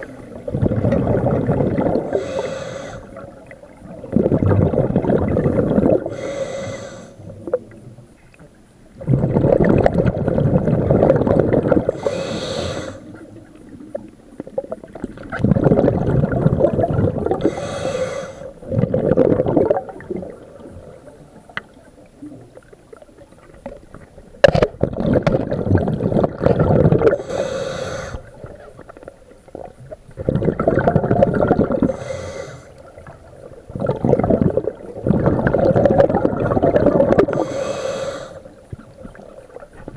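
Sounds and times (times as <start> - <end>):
bubbling exhalations: 0.0 - 7.7, 9.0 - 13.2, 14.4 - 21.0, 24.4 - 28.9, 29.5 - 39.9
diver breathing through regulator: 1.8 - 3.3, 5.8 - 7.3, 11.9 - 13.2, 17.3 - 18.6, 27.0 - 28.4, 31.8 - 32.9, 37.1 - 38.6.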